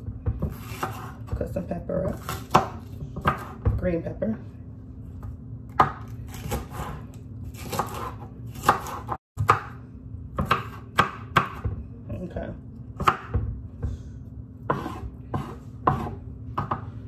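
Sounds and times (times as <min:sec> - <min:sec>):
steady low hum: 0:00.0 - 0:17.0
knife chopping on wooden board: 0:00.1 - 0:01.5, 0:02.1 - 0:03.9, 0:05.7 - 0:11.8, 0:13.0 - 0:14.0, 0:14.6 - 0:17.0.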